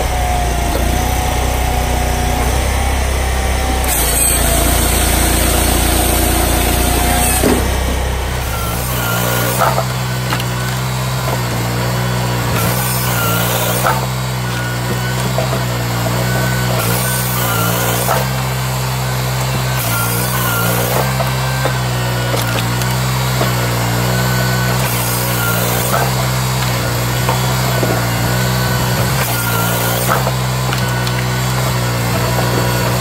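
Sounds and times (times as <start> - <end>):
engine and hydraulics running: 0.0 - 33.0
saw cutting through log: 0.0 - 33.0
sharp knocks of log moving: 6.6 - 8.1.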